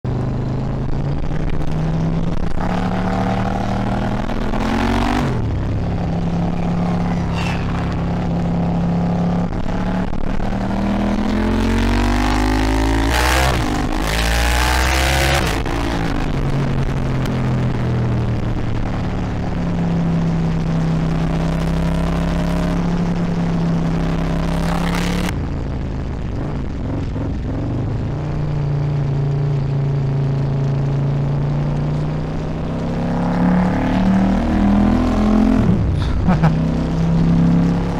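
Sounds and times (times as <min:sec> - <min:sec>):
motorcycle engine accelerating: 0:00.0 - 0:37.9.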